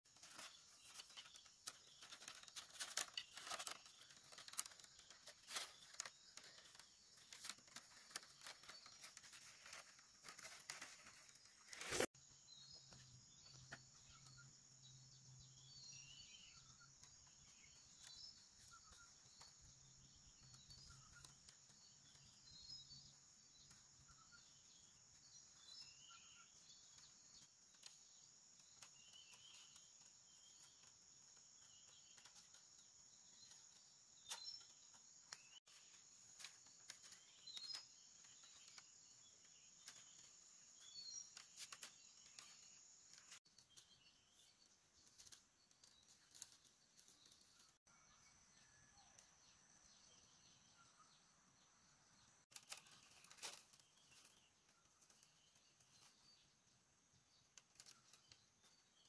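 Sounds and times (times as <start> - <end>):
bamboo strips crackling and tearing: 0.2 - 12.1.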